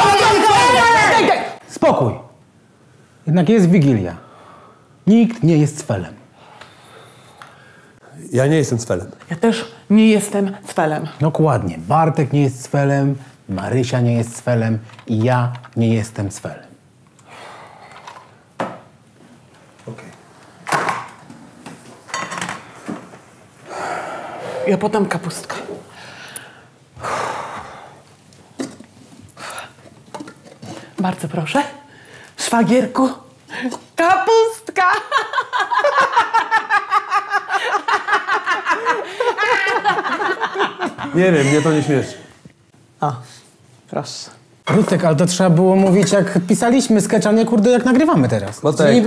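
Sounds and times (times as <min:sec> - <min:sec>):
woman laughing hard: 0:35.0 - 0:42.0.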